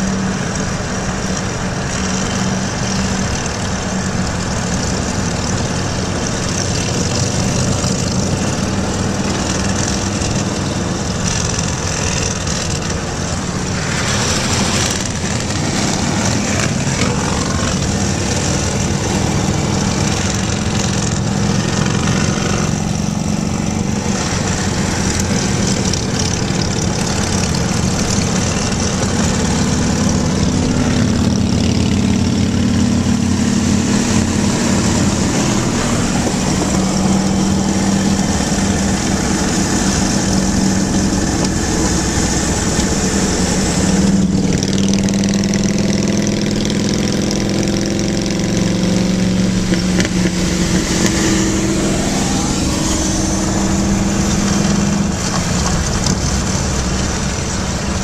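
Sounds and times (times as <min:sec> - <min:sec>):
motorcycle engines running: 0:00.0 - 0:58.0
wind and road noise: 0:00.0 - 0:58.0.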